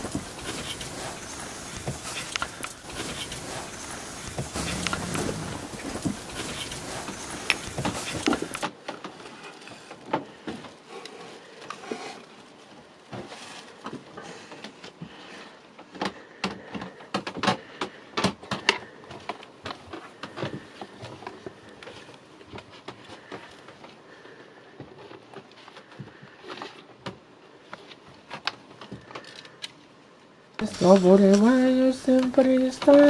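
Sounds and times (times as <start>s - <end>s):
steady noise: 0.0s - 8.7s
clicks and knocks of objects: 0.0s - 12.3s, 15.8s - 29.8s.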